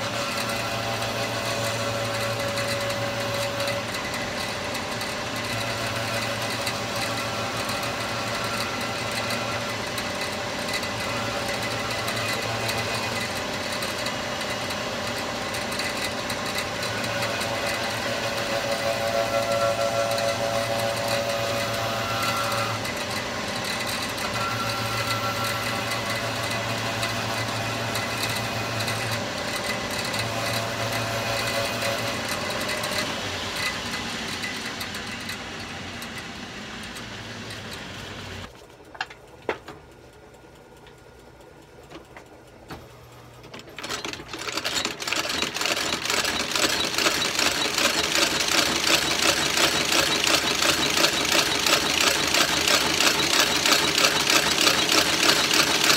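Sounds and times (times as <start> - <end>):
stitching machine running: 0.0 - 33.1, 43.5 - 55.9
machine clicks: 43.4 - 55.9.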